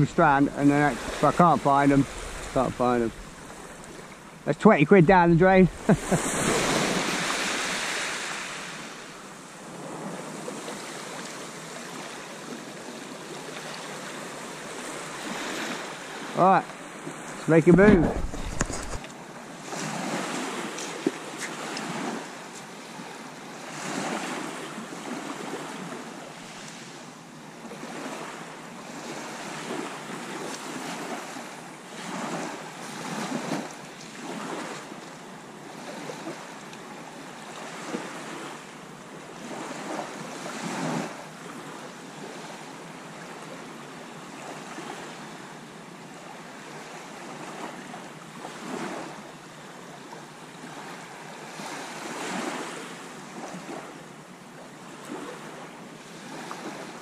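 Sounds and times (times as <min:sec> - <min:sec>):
waves washing onto pebbly beach: 0:00.0 - 0:04.0, 0:05.1 - 0:12.1
wind: 0:00.0 - 0:57.0.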